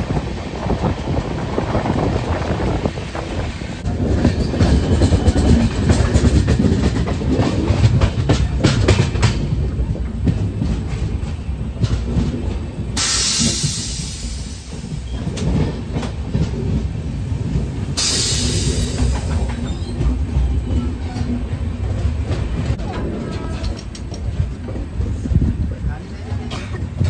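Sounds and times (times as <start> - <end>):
train low rumble: 0.0 - 27.0
train wheels clicking over rail joints: 0.0 - 27.0
hissing rush: 17.2 - 20.1.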